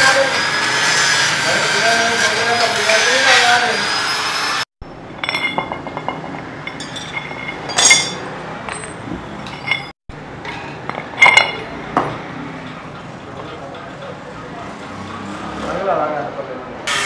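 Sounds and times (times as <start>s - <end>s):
steel studs clinking on metal: 5.1s - 11.7s.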